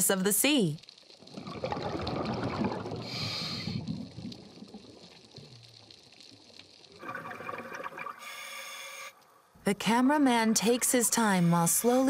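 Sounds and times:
exhaled bubbles gurgling underwater: 1.1 - 8.4
regulator inhale hiss: 3.0 - 3.9, 8.2 - 9.3.

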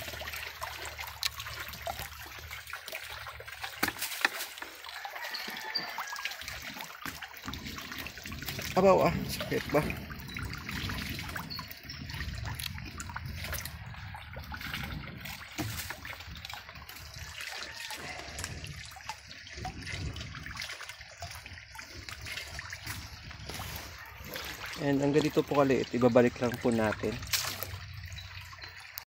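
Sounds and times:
small splashes and clicks: 0.0 - 29.0
water trickling: 0.0 - 29.0.

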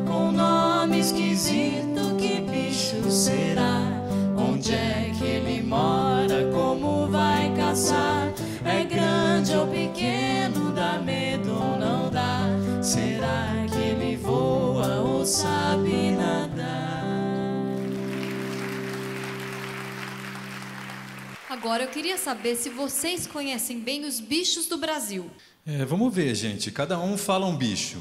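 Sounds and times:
audience applause: 17.8 - 23.5.

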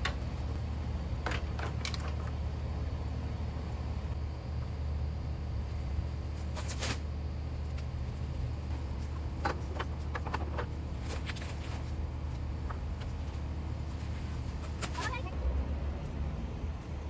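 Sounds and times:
palm fronds rustling: 6.2 - 9.4, 10.8 - 15.3.

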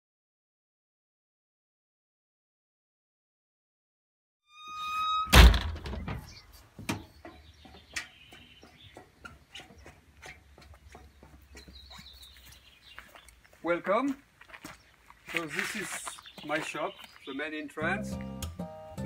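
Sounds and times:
short high squeal: 4.5 - 5.6
door banging shut: 5.0 - 7.0.

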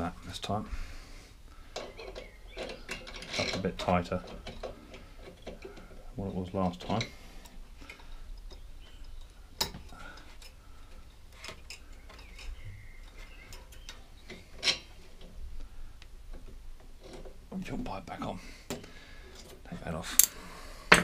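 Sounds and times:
hand tools and metal parts clicking: 1.7 - 6.0, 6.6 - 15.3, 18.7 - 21.0.

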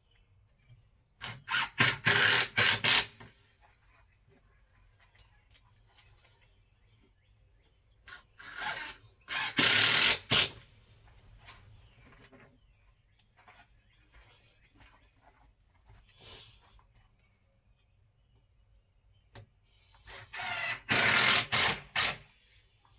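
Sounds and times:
power tool bursts: 1.2 - 3.2, 8.5 - 10.6, 20.1 - 22.3.

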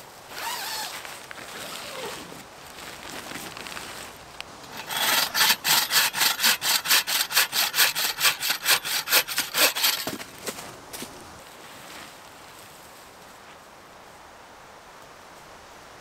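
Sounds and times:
hand saw cutting branch: 4.7 - 10.3.

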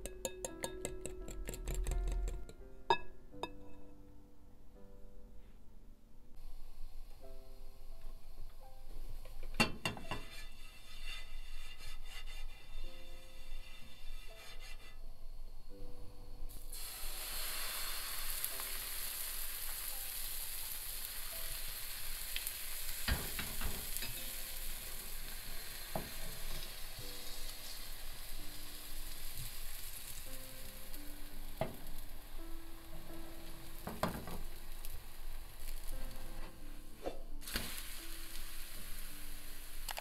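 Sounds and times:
batter sizzling in a pan: 9.0 - 14.9, 16.5 - 36.4, 37.4 - 40.0.

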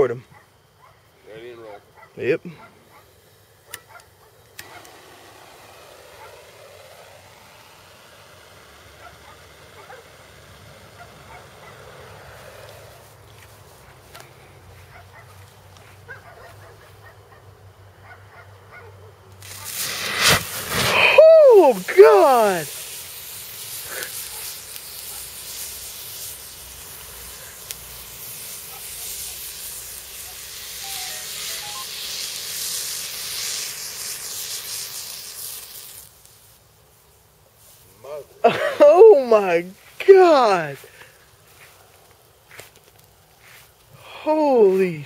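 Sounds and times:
igniter hissing and burning: 0.0 - 17.8, 19.3 - 45.0
sharp crack: 3.7 - 10.3, 19.4 - 22.9.

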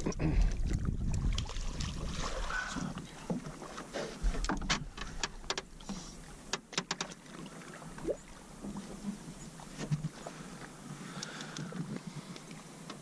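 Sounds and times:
river water running: 0.0 - 13.0
sharp knocks and clicks: 4.4 - 5.7, 6.5 - 7.2.

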